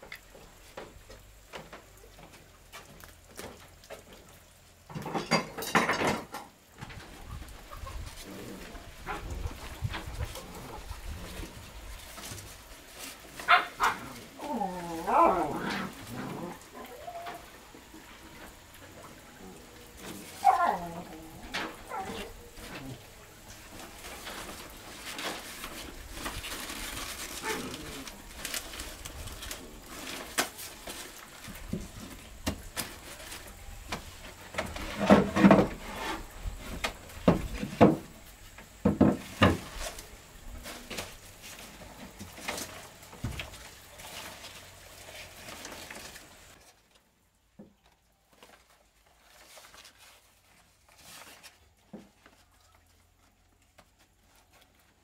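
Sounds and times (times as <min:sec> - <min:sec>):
hands rustling leaves: 0:07.0 - 0:35.0.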